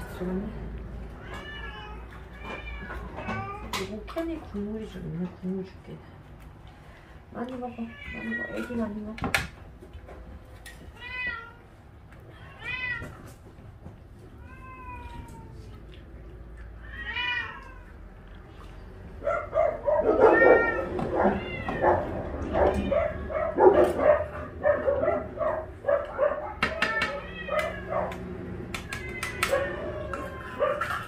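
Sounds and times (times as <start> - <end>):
cats meowing: 1.1 - 3.9, 7.8 - 8.9, 10.8 - 13.4, 14.0 - 16.0, 16.6 - 18.0, 19.4 - 31.0.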